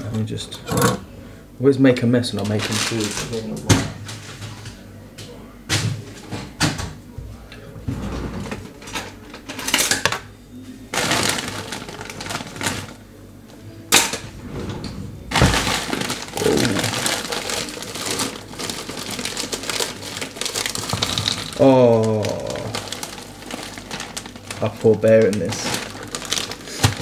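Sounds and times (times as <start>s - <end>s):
plastic bag rustling: 2.4s - 4.5s, 10.9s - 13.0s, 13.9s - 27.0s.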